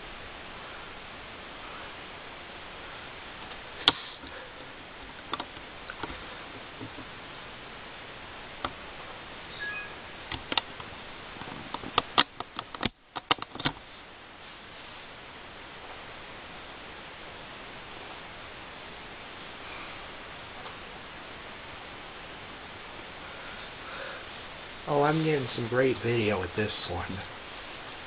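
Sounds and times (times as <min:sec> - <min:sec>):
video tape hiss: 0:00.0 - 0:28.0
small clicks and taps: 0:05.2 - 0:07.1, 0:10.3 - 0:13.8.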